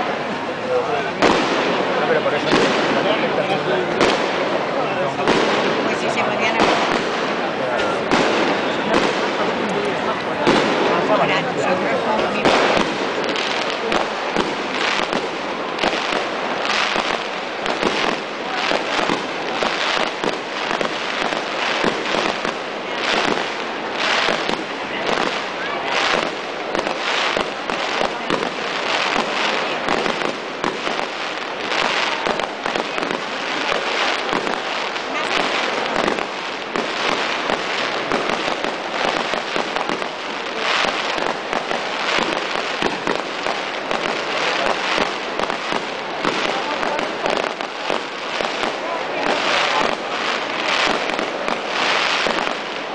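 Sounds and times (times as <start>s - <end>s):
firecrackers crackling: 0.0s - 52.9s.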